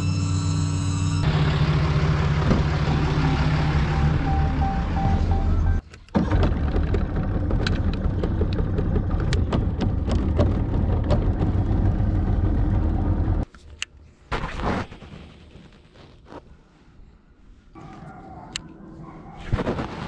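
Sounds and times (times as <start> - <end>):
outboard motor rumbling: 1.2 - 4.7, 5.6 - 13.4
scattered clicks and knocks: 6.1 - 12.2.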